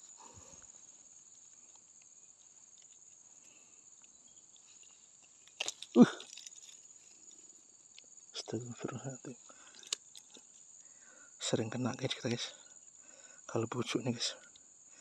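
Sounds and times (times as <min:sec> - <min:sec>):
insects chirring: 0:00.0 - 0:15.0
low grunt-like sound: 0:06.0 - 0:06.2.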